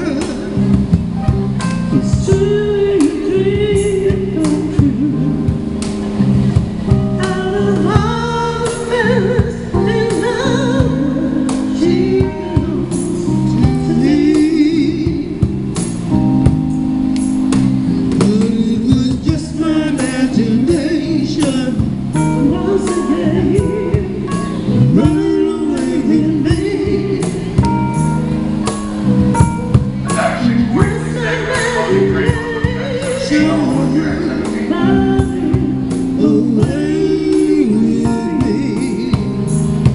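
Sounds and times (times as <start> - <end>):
electric keyboard: 0.0 - 39.9
live soul band playing: 0.0 - 39.9
people singing: 30.0 - 39.3.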